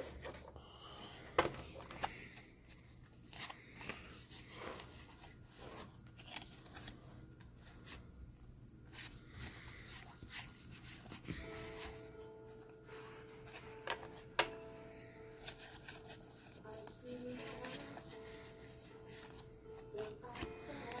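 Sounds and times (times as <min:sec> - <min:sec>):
cards flicking and rustling: 0:01.6 - 0:08.1.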